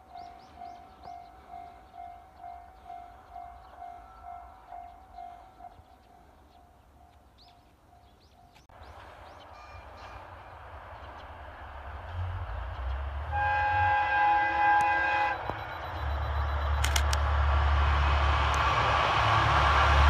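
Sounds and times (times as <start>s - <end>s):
crossing bell dinging: 0.0s - 6.0s
birds chirping: 0.0s - 11.4s
train rumbling: 0.0s - 20.0s
train horn blast: 13.2s - 15.6s.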